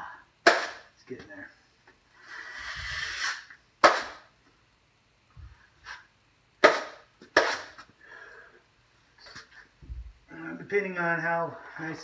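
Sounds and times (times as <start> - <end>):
taping knife scraping mud pan: 2.2 - 4.2.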